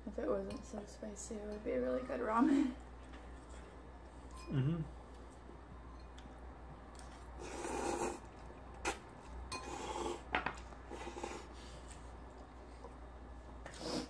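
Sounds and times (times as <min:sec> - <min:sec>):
person slurping noodles: 0:07.4 - 0:09.0, 0:09.6 - 0:10.3, 0:13.7 - 0:14.0.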